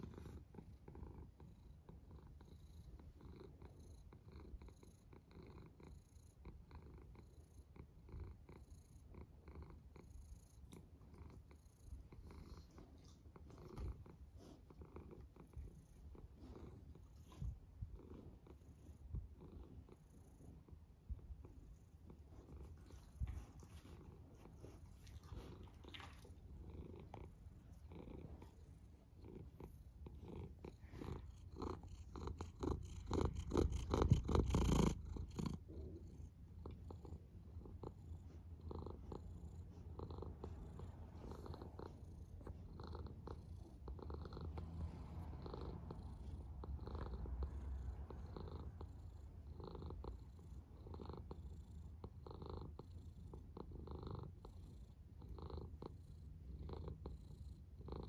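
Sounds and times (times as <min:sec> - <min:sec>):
cat purring: 0:00.0 - 0:58.0.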